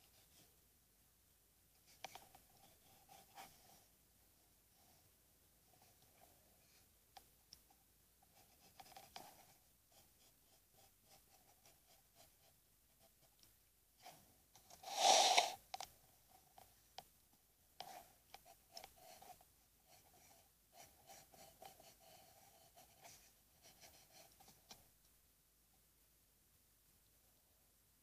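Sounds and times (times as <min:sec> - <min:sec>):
pencil scratching on paper: 0:08.3 - 0:13.3, 0:14.0 - 0:15.6, 0:17.8 - 0:24.8.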